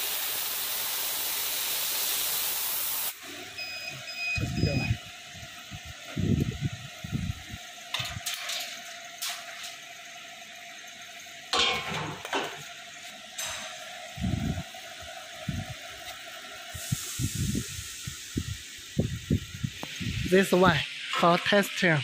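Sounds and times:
laser cutter humming: 8.8 - 22.0.

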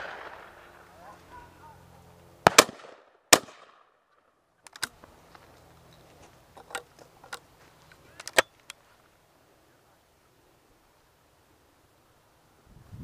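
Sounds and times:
shotgun metallic clicks: 4.1 - 8.8.

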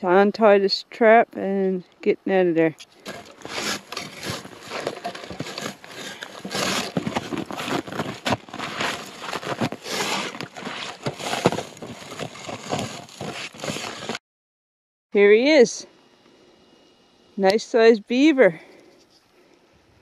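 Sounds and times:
crunching of snow: 3.0 - 14.2
scraping against branches: 3.0 - 14.2.

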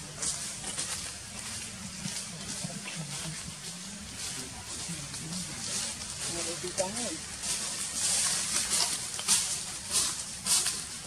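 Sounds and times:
faint low voices: 0.0 - 8.2
steady high hiss: 0.0 - 11.0.

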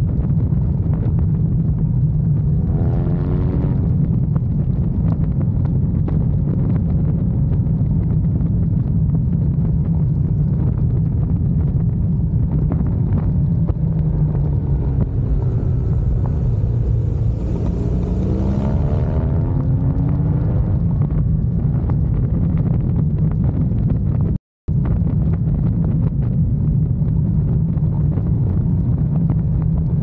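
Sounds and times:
wind and road rumble: 0.0 - 30.0
motorcycle engine running: 10.8 - 24.0.

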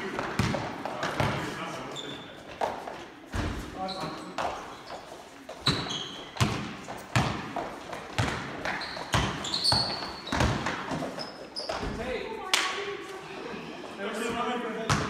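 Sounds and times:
basketball bouncing in a gym: 0.0 - 1.5, 5.6 - 12.1
sneaker squeaks on floor: 1.9 - 2.5, 3.4 - 7.3, 8.1 - 12.1.

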